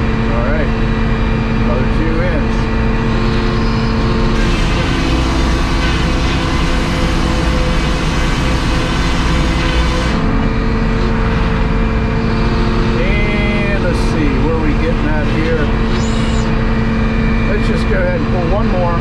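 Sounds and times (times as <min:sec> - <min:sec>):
engine droning: 0:00.0 - 0:19.0
saw cutting a board: 0:00.0 - 0:19.0.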